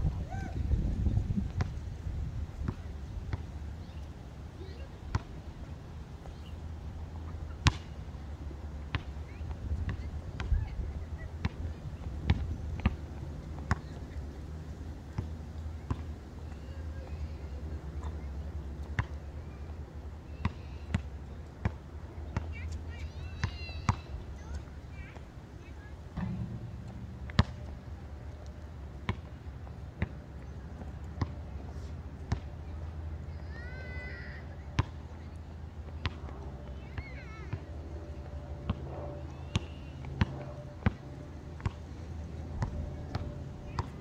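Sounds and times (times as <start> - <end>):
low steady hum: 0.0 - 33.5
basketball bouncing on concrete: 15.9 - 16.1, 26.2 - 28.0
low rumble: 26.1 - 29.1.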